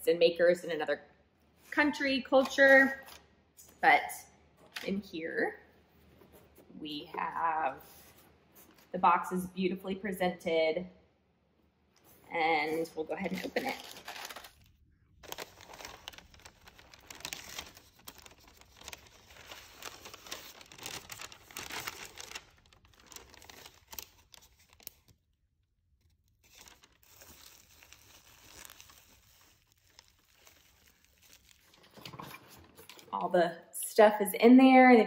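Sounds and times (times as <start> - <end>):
paper wrapping crinkling: 12.0 - 25.2, 26.0 - 33.2
paper shred filler rustling: 15.2 - 25.0.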